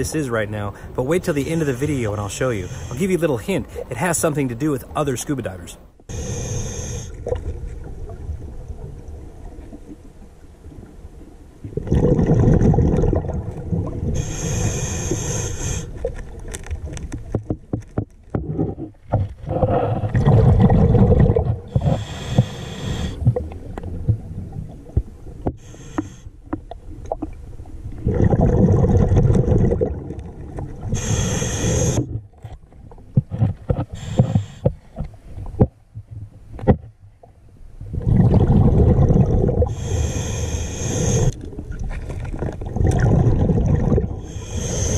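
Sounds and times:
regulator breathing hiss: 0:02.5 - 0:03.1, 0:06.1 - 0:07.2, 0:14.2 - 0:16.0, 0:21.8 - 0:23.3, 0:25.6 - 0:26.3, 0:30.9 - 0:32.0, 0:33.9 - 0:34.7, 0:39.7 - 0:41.4, 0:44.2 - 0:44.9
exhaled bubbles rumbling: 0:07.2 - 0:25.7, 0:26.4 - 0:36.4, 0:37.2 - 0:40.3, 0:40.9 - 0:44.9.

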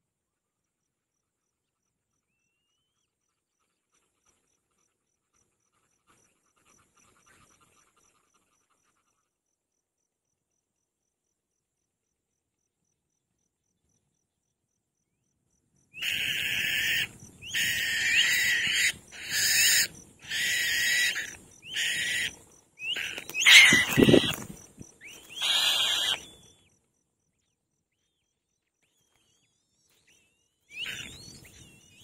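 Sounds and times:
bird harsh screeching calls: 0:16.0 - 0:26.5, 0:30.7 - 0:31.5.

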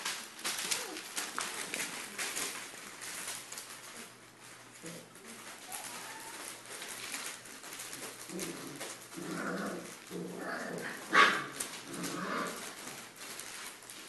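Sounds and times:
puppies crying: 0:05.6 - 0:06.6.

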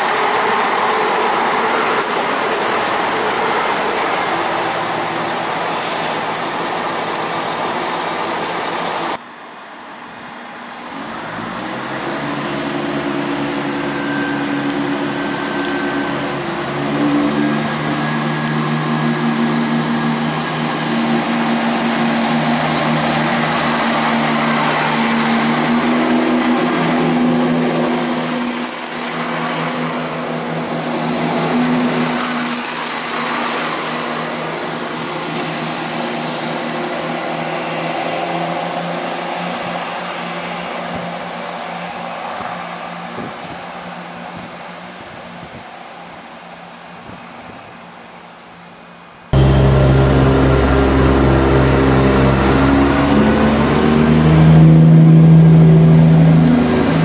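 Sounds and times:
train wheels clattering on rails: 0:00.0 - 0:09.2
train diesel engine droning: 0:00.0 - 0:45.0, 0:49.4 - 0:57.0.

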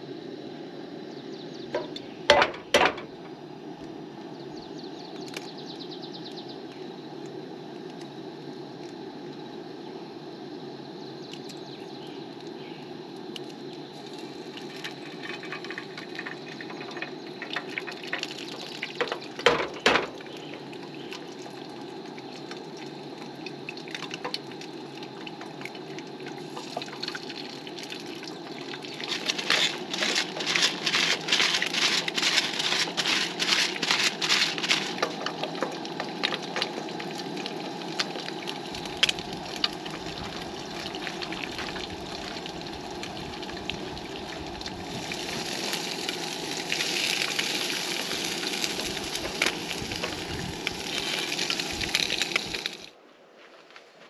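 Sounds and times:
camp stove burner hiss: 0:00.0 - 0:53.0
eggs sizzling in a pan: 0:13.3 - 0:52.9
eggs cracked on a pan: 0:14.6 - 0:20.4
pepper grinder clicking: 0:29.1 - 0:36.9.

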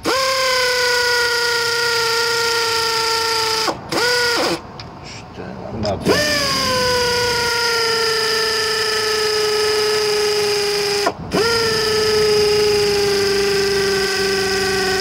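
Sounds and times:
pneumatic air ratchet whine: 0:00.0 - 0:05.3, 0:06.0 - 0:15.0.

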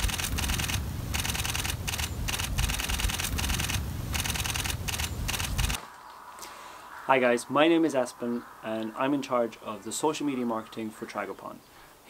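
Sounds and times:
camera shutter clicking: 0:00.0 - 0:05.8.

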